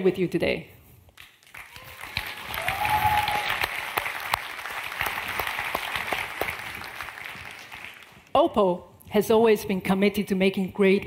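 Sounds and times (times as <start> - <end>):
audience applauding: 1.2 - 8.3.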